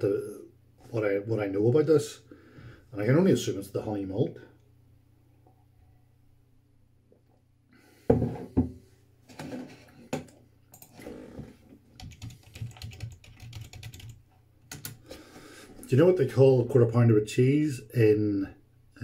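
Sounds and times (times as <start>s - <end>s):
thump: 8.1s - 8.8s
typing on keyboard: 10.7s - 11.0s, 12.0s - 15.0s.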